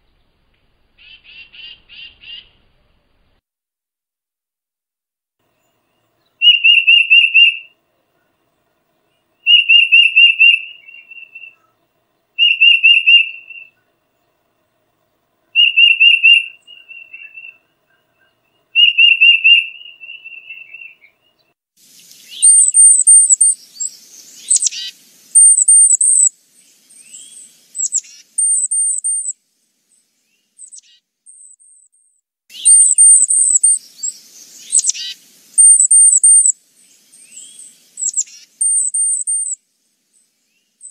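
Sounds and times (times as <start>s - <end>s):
bird whistled song: 6.3s - 7.8s, 9.4s - 11.7s, 12.4s - 13.9s, 15.5s - 29.4s, 30.2s - 39.6s, 40.4s - 40.9s
downward-sweeping bird chirps: 9.4s - 11.8s, 12.4s - 13.9s, 15.5s - 21.4s, 22.0s - 29.4s, 30.3s - 31.9s, 32.5s - 39.6s
recording hiss: 21.8s - 30.8s, 32.5s - 40.9s.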